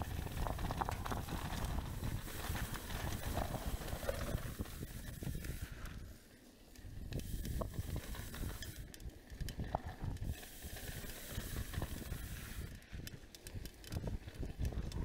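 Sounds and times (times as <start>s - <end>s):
bike knocking and rattling: 0.0s - 6.0s, 7.2s - 15.0s
bike tyres rolling on dirt: 0.0s - 15.0s
steady hiss: 7.1s - 9.0s, 10.0s - 12.8s.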